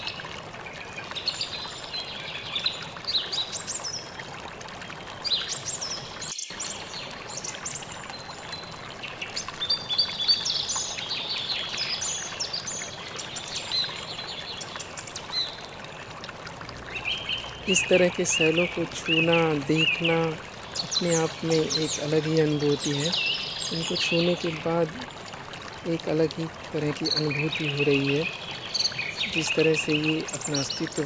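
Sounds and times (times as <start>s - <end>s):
birds chirping: 16.8s - 31.0s.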